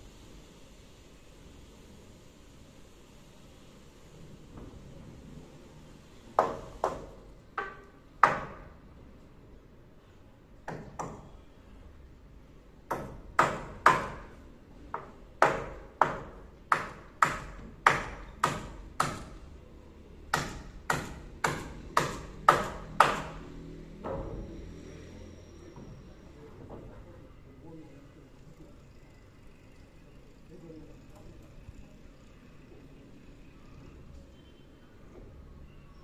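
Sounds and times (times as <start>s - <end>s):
hammer driving nails into wood: 14.9s - 19.4s, 20.3s - 23.4s.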